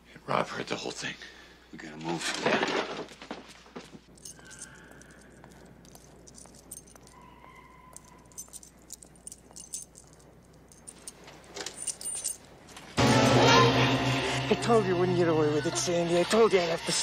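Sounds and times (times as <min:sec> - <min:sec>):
keys jangling: 0:04.0 - 0:13.0.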